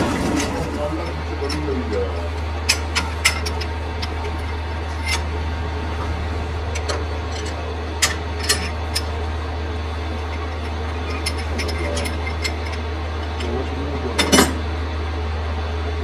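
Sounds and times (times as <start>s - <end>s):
workshop machine humming: 0.0s - 16.0s
metal tools clinking: 6.0s - 9.1s, 10.2s - 13.6s, 14.2s - 14.6s.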